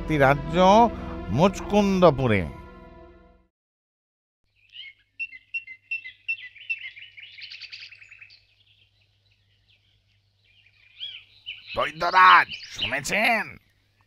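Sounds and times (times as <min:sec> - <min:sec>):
birds chirping: 0:04.5 - 0:14.0.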